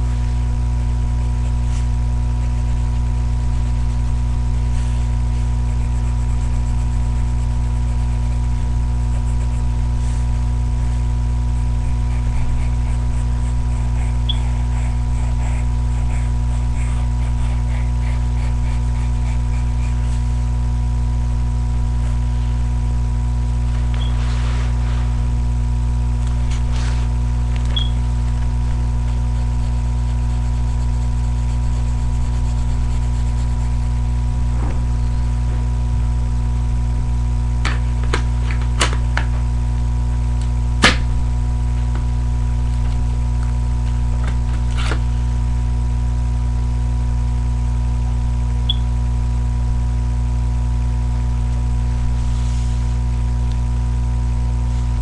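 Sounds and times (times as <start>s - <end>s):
low electrical hum: 0.0s - 55.0s
faint light scratching: 23.6s - 25.3s, 26.4s - 28.0s, 52.1s - 53.0s.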